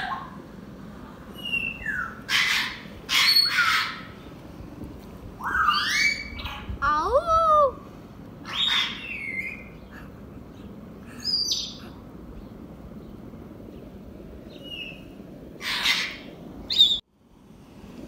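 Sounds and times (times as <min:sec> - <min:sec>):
parrot screech: 0:05.5 - 0:06.6, 0:08.5 - 0:09.2, 0:15.6 - 0:16.2
parrot whistles: 0:05.5 - 0:06.6.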